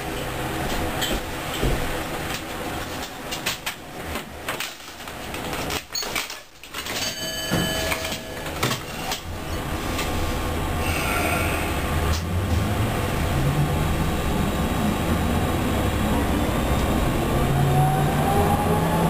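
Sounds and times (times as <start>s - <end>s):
tram equipment humming: 0.0s - 19.0s
scattered clicks and knocks: 0.7s - 9.3s.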